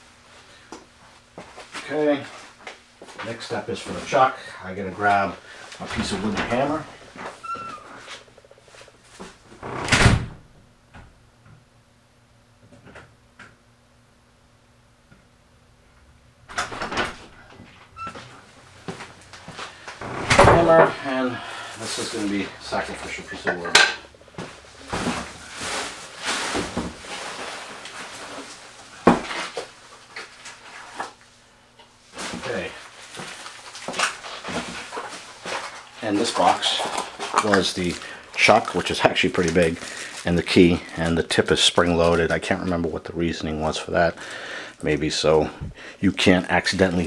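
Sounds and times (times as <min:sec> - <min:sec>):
loud thud: 0:20.1 - 0:21.0.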